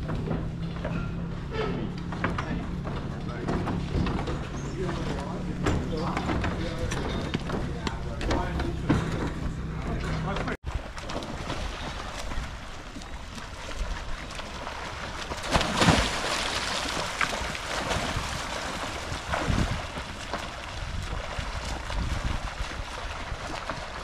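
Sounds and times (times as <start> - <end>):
wind rumbling on microphone: 0.0 - 24.0
swimmers' strokes splashing: 2.1 - 24.0
splash of diver entering water: 14.3 - 24.0.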